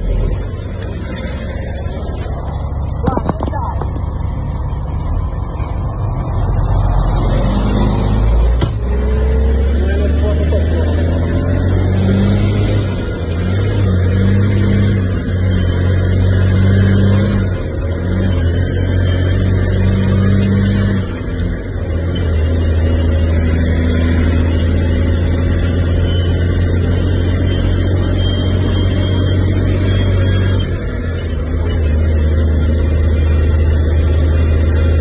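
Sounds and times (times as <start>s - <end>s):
truck diesel engine pulling: 0.0s - 35.0s.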